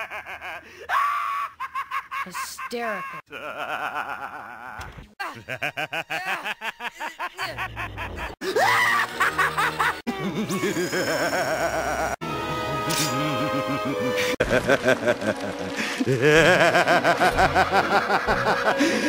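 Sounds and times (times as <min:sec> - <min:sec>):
cartoon character laughing: 0:01.2 - 0:12.2, 0:16.0 - 0:19.0
background music: 0:07.5 - 0:19.0.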